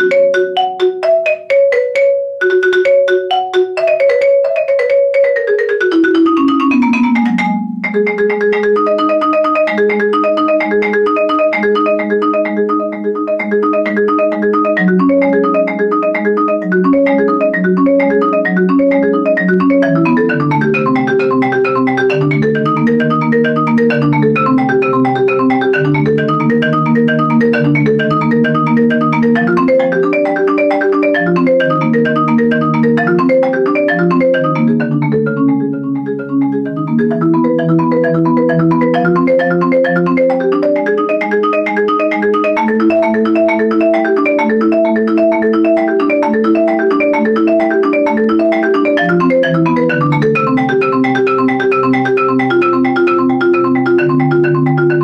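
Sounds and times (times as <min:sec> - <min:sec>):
marimba played with mallets: 0:00.0 - 0:55.0.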